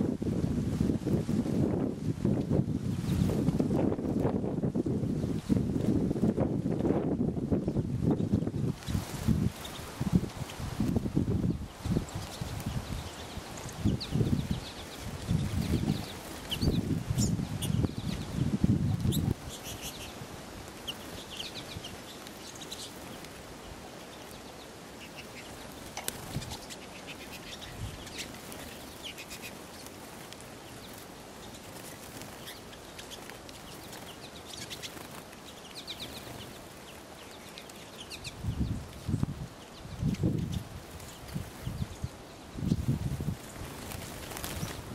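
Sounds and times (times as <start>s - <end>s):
birds chirping and twittering: 1.8s - 44.9s
wings flapping: 11.8s - 18.4s, 25.0s - 37.8s, 42.7s - 44.9s.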